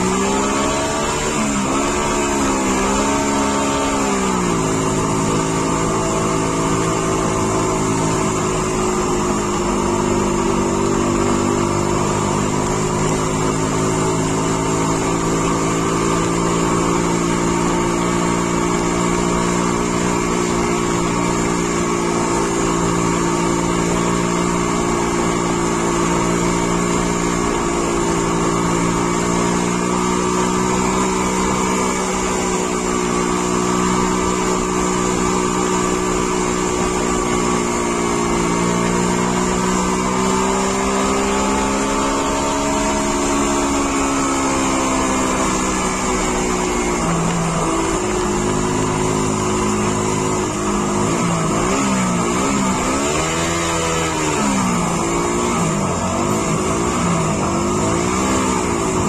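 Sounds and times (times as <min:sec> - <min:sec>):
car engine running: 0:00.0 - 0:59.0.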